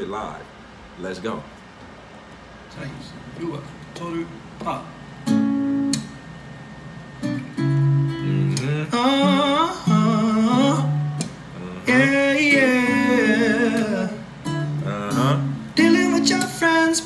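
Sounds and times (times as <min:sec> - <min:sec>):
acoustic guitars strumming: 0:04.6 - 0:17.0
man singing: 0:08.2 - 0:17.0.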